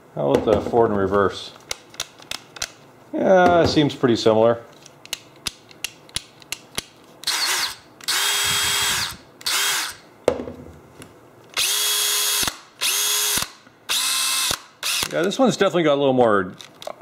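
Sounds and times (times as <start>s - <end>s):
cordless drill motor whine: 7.3s - 10.0s, 11.6s - 15.1s.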